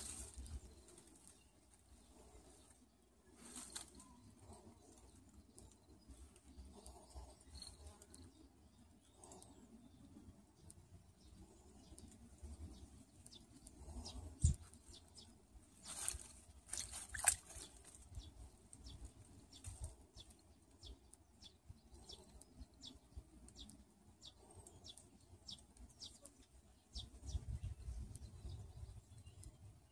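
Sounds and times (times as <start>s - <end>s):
puppy splashing in puddle: 16.8s - 17.7s.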